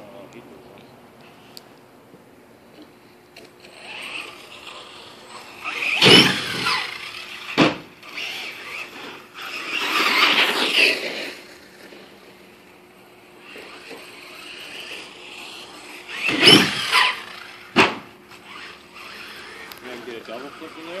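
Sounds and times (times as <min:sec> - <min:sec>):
toy truck motor whining: 0:03.4 - 0:11.9, 0:13.2 - 0:17.8, 0:18.4 - 0:21.0
sharp crack of landing: 0:05.7 - 0:08.0, 0:16.2 - 0:18.1.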